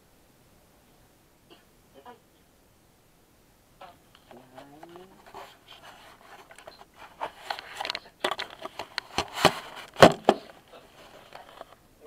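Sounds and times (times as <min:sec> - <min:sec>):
rustling: 0:04.2 - 0:11.8.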